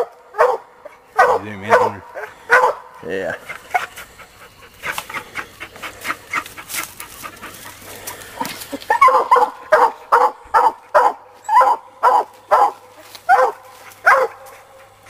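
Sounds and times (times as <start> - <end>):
dog barking rapidly: 0.0 - 4.0, 8.9 - 14.5
rustling: 3.5 - 9.4
dog yipping: 8.9 - 14.4.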